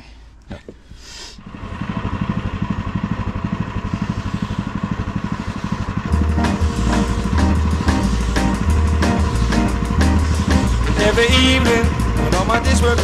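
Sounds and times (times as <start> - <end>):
plate compactor engine pulsing: 1.4 - 13.0
music: 6.1 - 13.0.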